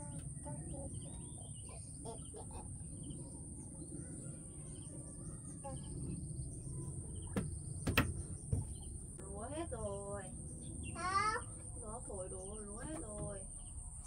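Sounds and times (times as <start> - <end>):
high insect drone: 0.0 - 14.0
low rumble: 0.0 - 14.0
small birds chirping: 0.0 - 14.0
sharp knocks: 7.3 - 8.9.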